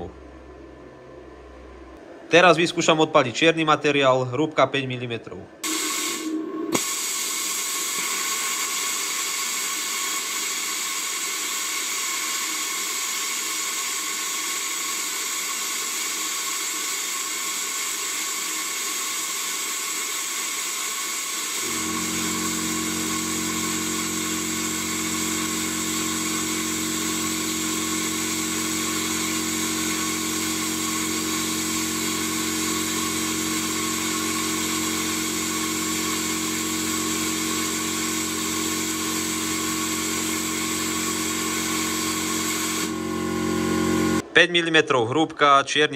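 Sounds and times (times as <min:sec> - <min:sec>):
low steady hum: 0:00.0 - 0:05.6
plasma cutter hissing and whining: 0:05.6 - 0:43.0.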